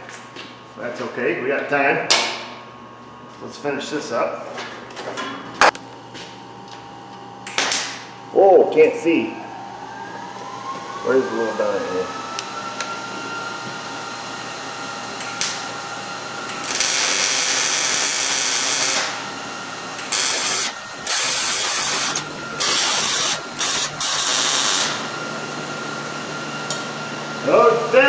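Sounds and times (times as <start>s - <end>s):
welding crackling hiss: 16.6s - 19.1s, 20.1s - 24.9s.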